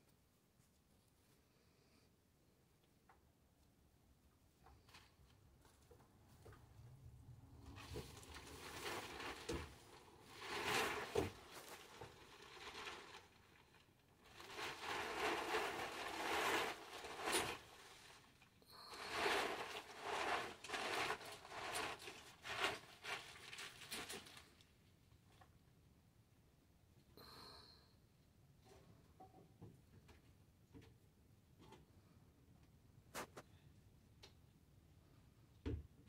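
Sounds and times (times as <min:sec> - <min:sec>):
packaging rustling and crinkling: 0:07.7 - 0:24.6.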